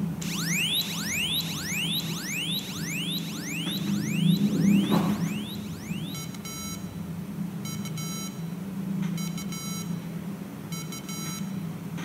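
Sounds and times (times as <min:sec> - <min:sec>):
square-wave beeps: 0:00.2 - 0:07.0.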